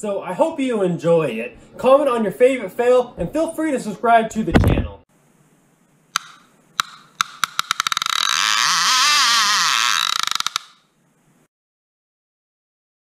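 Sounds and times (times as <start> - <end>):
sharp knocks: 6.2 - 8.1
clicks into buzzing rattle: 6.2 - 8.4, 10.0 - 10.8.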